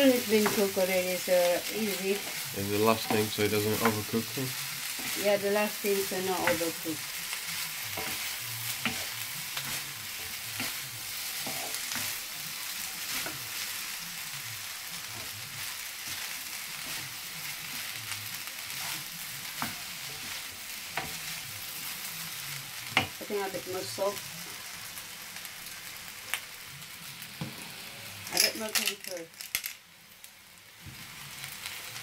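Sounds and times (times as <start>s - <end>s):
spatula scraping pan: 0.0s - 14.0s, 15.0s - 22.1s
rice sizzling in frying pan: 0.0s - 32.0s.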